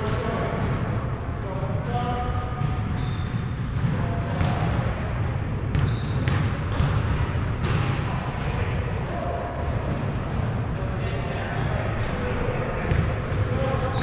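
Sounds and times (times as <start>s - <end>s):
sneaker squeaks: 1.9s - 4.6s, 5.7s - 7.0s, 9.2s - 10.3s, 11.0s - 11.6s, 12.8s - 14.0s
basketball bouncing on hardwood: 5.7s - 7.8s.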